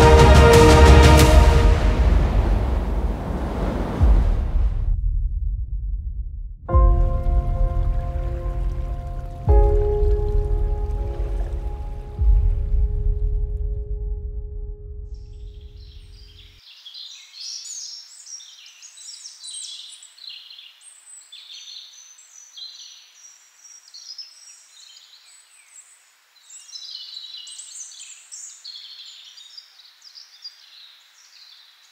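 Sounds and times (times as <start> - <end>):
birds chirping and twittering: 15.2 - 31.9.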